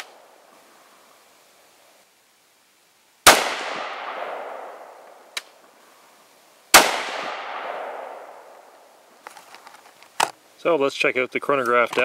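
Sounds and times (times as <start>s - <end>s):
rifle shots with echo: 3.2s - 5.0s, 6.7s - 8.5s.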